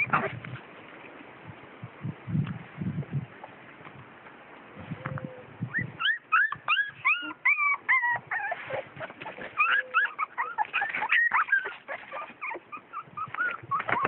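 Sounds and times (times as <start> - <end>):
puppies whimpering and squealing: 0.0 - 0.4, 5.3 - 14.0.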